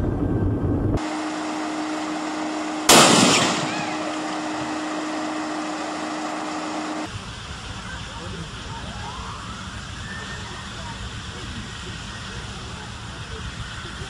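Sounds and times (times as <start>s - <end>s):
steady hum: 0.0s - 14.0s
loud electrical bang: 2.8s - 5.1s.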